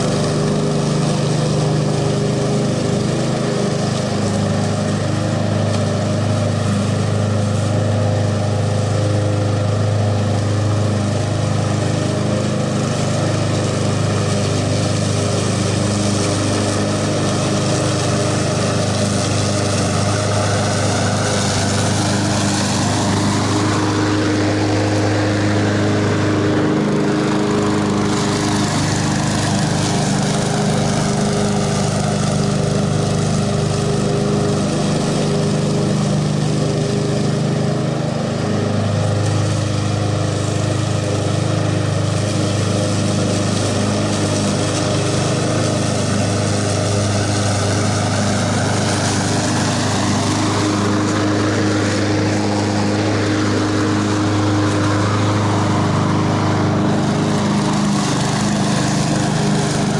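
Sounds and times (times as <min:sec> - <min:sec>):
lawn mower engine running: 0:00.0 - 0:59.9.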